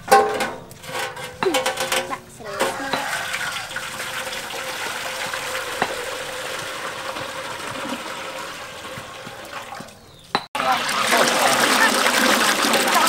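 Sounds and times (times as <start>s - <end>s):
water pouring into metal pot: 2.5s - 9.9s, 10.6s - 13.0s.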